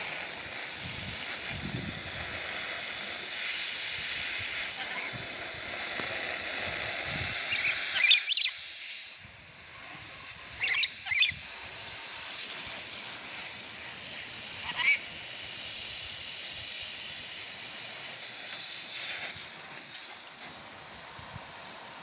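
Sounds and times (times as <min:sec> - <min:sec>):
water spraying hiss: 0:00.0 - 0:22.0
parrot screeching: 0:07.5 - 0:08.6, 0:10.6 - 0:11.4, 0:14.6 - 0:15.0.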